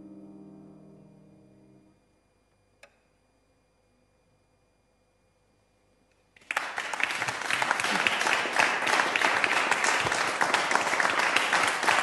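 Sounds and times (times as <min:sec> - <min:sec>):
audience applause: 0:06.4 - 0:12.0.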